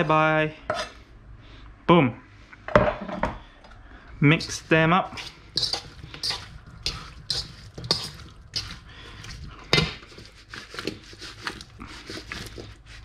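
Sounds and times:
metal spoon scraping steel bowl: 0:00.7 - 0:01.0, 0:04.4 - 0:12.6.

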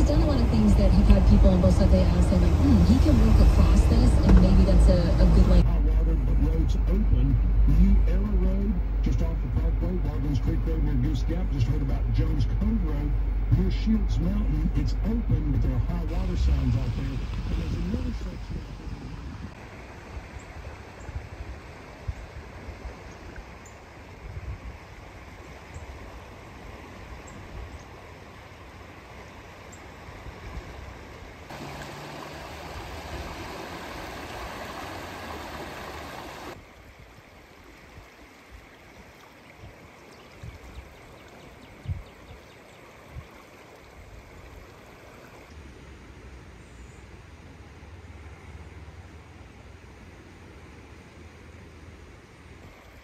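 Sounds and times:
low thumps: 0:00.0 - 0:05.7
floodwater rushing: 0:00.0 - 0:46.0.

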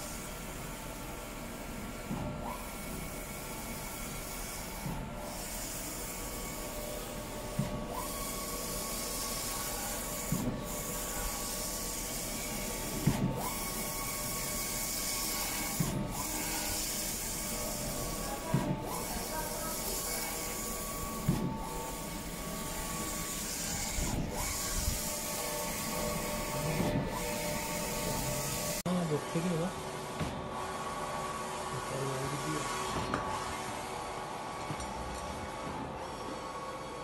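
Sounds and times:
printer carriage hissing: 0:00.0 - 0:28.8.

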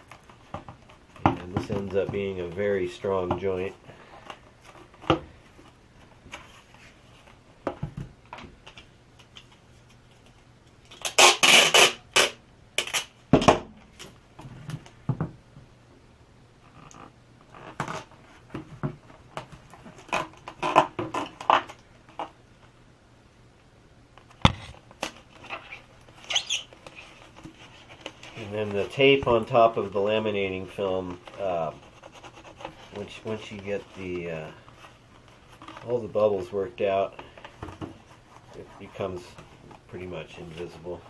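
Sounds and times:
foam board knocks and crinkles: 0:00.4 - 0:03.6
packing tape pulled off roll: 0:10.8 - 0:13.2
tape tearing: 0:10.8 - 0:13.2, 0:24.4 - 0:29.6.

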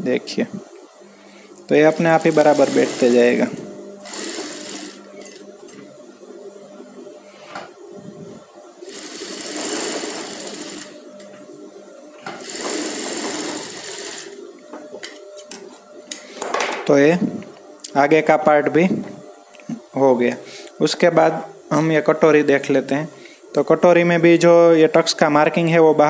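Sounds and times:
sewing machine stitching: 0:01.9 - 0:05.4, 0:08.8 - 0:11.0, 0:12.4 - 0:14.4.

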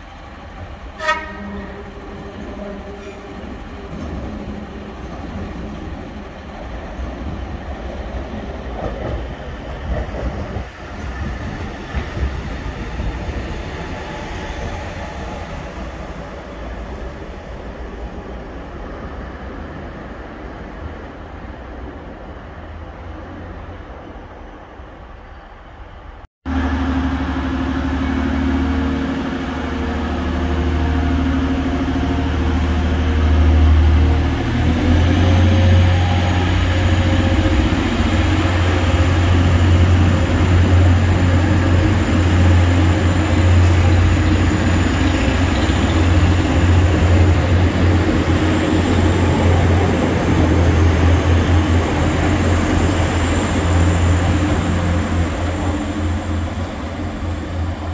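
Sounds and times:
diesel train engines droning: 0:00.0 - 0:57.9.

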